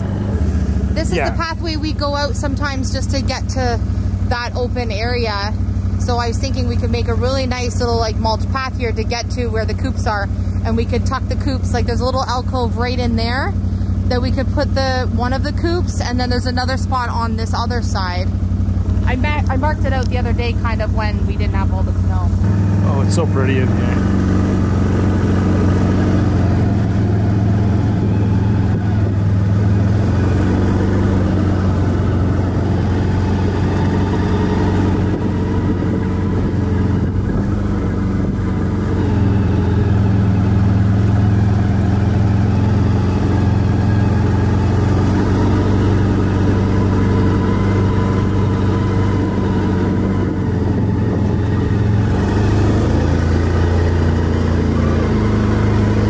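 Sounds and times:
atv engine running: 0:00.0 - 0:56.0.

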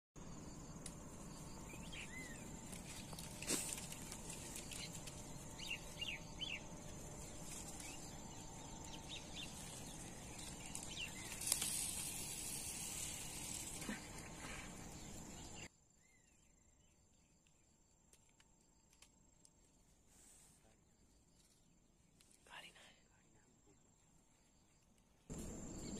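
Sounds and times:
birds chirping: 0:00.4 - 0:11.7, 0:13.7 - 0:17.0
fishing line snap and hiss: 0:02.8 - 0:04.9, 0:10.4 - 0:14.9.

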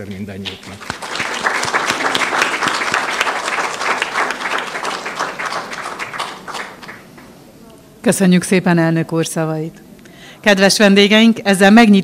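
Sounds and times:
audience applauding: 0:00.5 - 0:07.3.

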